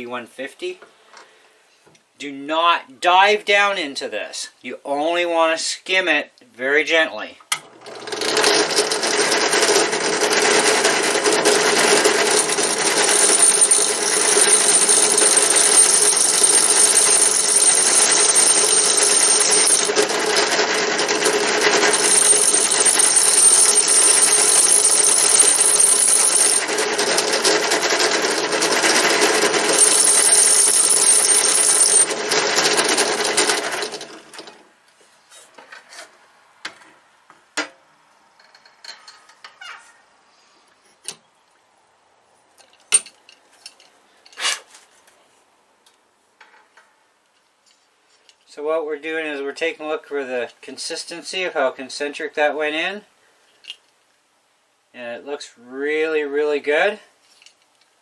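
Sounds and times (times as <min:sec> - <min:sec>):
drill press motor running: 0:07.6 - 0:34.4.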